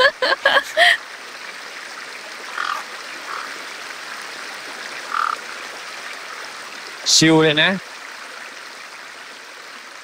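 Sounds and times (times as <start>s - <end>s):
river water over weir: 0.0s - 10.0s
short animal calls: 2.5s - 3.5s.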